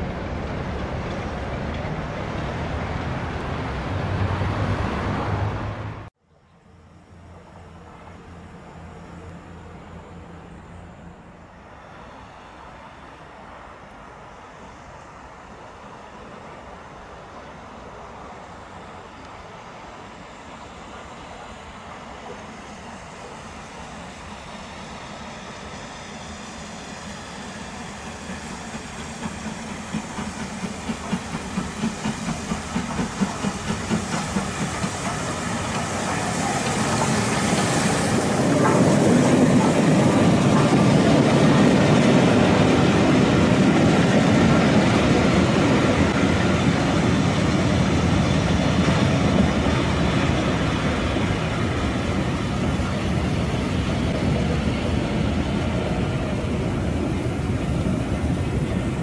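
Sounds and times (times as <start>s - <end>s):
steam locomotive exhaust beats: 22.2s - 59.0s
train wheels clattering on rails: 27.1s - 59.0s.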